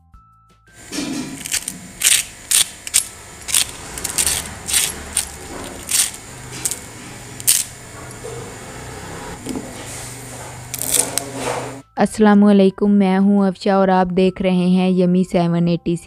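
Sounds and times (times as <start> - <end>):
fried potato sticks snapping: 1.4 - 7.7, 10.7 - 11.3.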